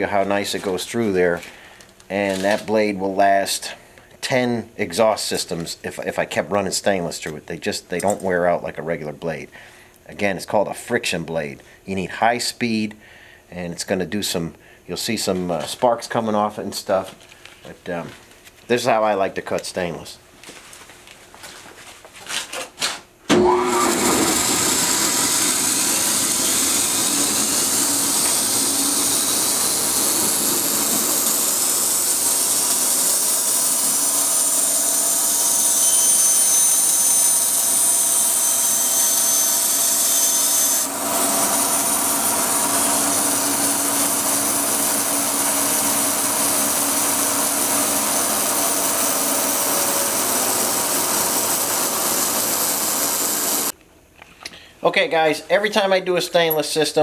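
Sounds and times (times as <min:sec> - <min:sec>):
bandsaw whining: 0:23.3 - 0:53.8
bandsaw cutting metal tube: 0:23.4 - 0:53.7.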